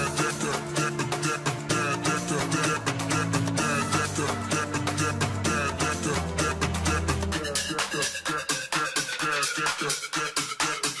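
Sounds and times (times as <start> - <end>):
upbeat electronic music: 0.0 - 11.0.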